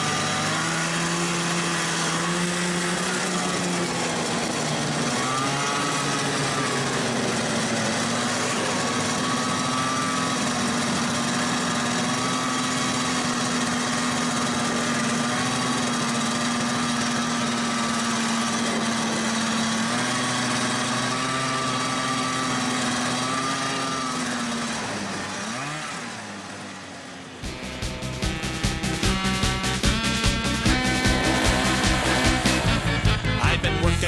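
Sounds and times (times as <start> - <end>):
two-stroke snowmobile engine running: 0.0 - 34.0.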